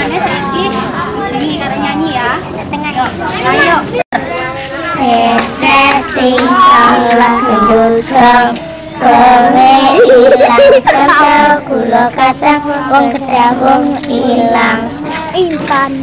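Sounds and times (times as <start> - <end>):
children singing together: 4.9 - 16.0.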